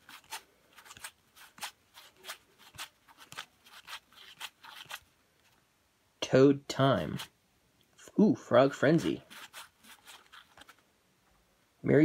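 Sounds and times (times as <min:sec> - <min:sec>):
cards sliding swishes: 0:00.0 - 0:05.6, 0:08.7 - 0:10.8.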